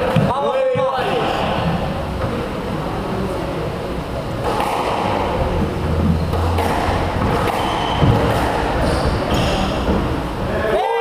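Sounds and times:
squash ball knocks: 0:06.3 - 0:10.2.

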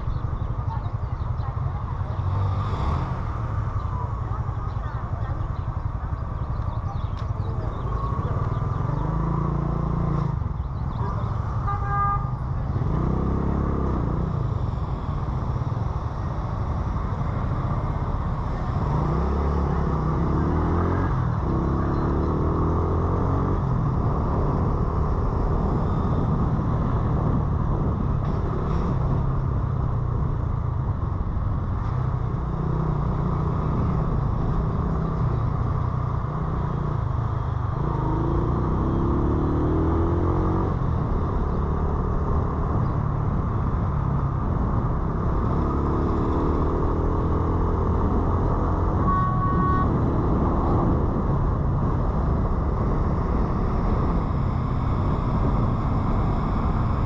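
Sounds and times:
wind and road noise: 0:00.0 - 0:57.0
motorcycle engine revving: 0:01.4 - 0:11.7, 0:12.6 - 0:29.3, 0:32.4 - 0:57.0
vehicle horn toot: 0:11.6 - 0:12.4, 0:49.0 - 0:50.1.

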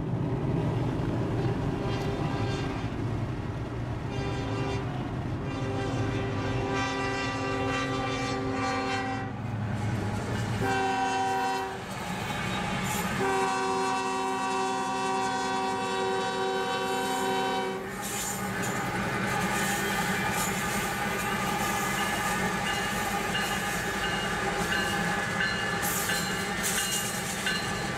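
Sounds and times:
locomotive air horn chord: 0:01.4 - 0:02.8, 0:04.1 - 0:09.4, 0:10.6 - 0:11.8, 0:13.1 - 0:23.7.

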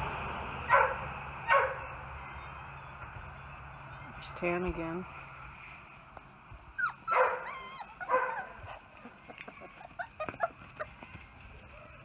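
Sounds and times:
puppy whining yelps: 0:06.8 - 0:11.2.

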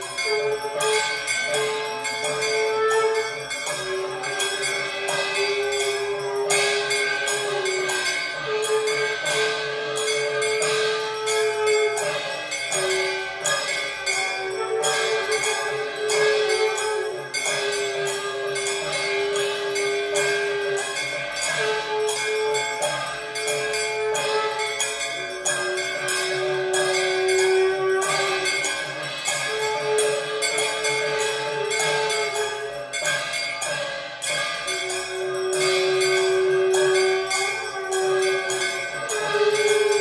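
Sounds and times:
music with long held notes: 0:00.0 - 0:40.0
temple bell ringing rapidly: 0:00.0 - 0:40.0.

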